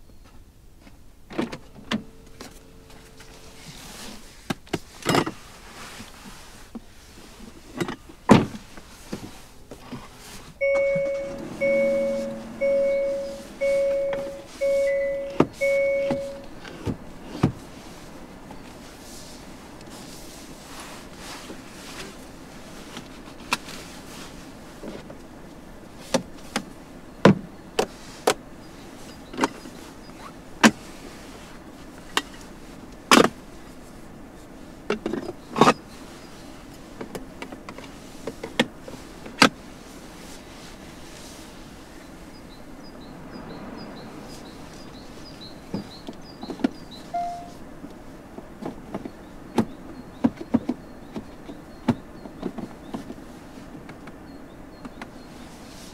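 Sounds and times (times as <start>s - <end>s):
steady low hum: 8.6s - 16.6s
faint rapid high chirping: 42.3s - 47.6s.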